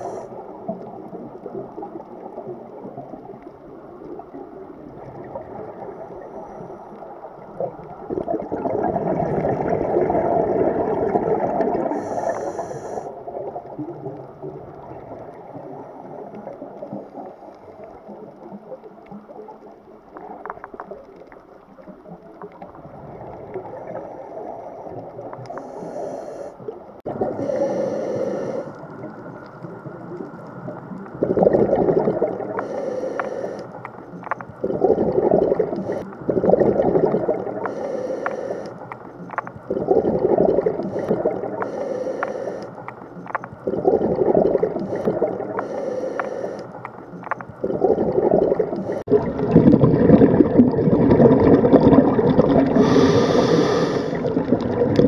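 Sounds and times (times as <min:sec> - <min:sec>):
regulator hiss on inhale: 0:00.0 - 0:00.4, 0:11.9 - 0:13.2, 0:25.5 - 0:26.7, 0:27.4 - 0:29.0, 0:32.6 - 0:33.9, 0:37.6 - 0:39.0, 0:40.8 - 0:43.0, 0:44.8 - 0:46.9, 0:52.7 - 0:54.3
exhaled bubbles gurgling: 0:00.0 - 0:55.0.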